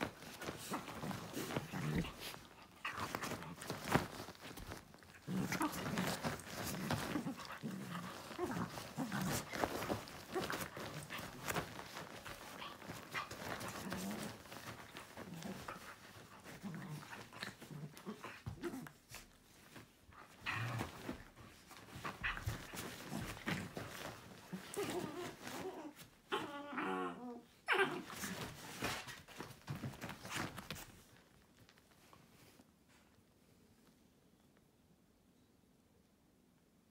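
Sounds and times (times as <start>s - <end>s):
puppies growling: 0.0s - 19.0s
rustling and thumps on duvet: 0.0s - 26.2s, 28.1s - 33.0s.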